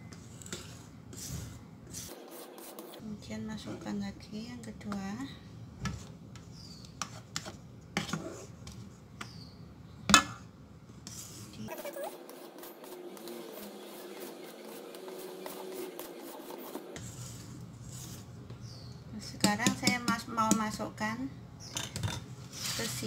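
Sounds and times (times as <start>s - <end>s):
whisk scraping around bowl: 0.1s - 3.0s, 11.1s - 18.3s.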